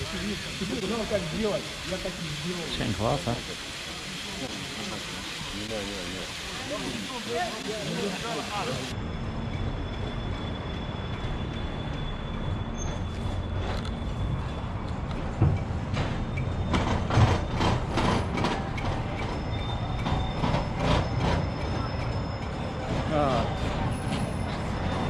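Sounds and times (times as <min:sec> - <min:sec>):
sharp knocks and clacks: 0:15.2 - 0:23.1.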